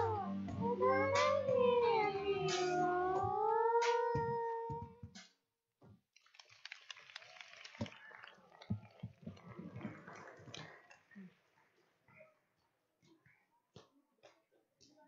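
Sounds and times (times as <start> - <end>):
children singing held note: 0.0 - 4.8
audience applauding: 6.2 - 11.4.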